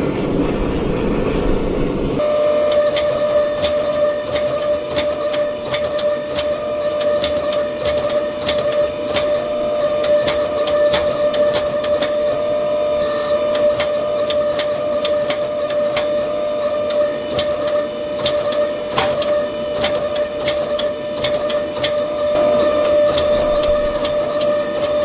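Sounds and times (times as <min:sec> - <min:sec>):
steady hum: 0:00.0 - 0:17.8, 0:21.4 - 0:25.0
gas forge drone: 0:00.0 - 0:25.0.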